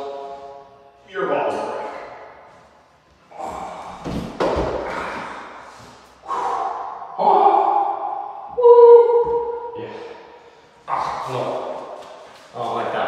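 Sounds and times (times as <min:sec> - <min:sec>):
held voice-like tone: 0:06.5 - 0:10.1.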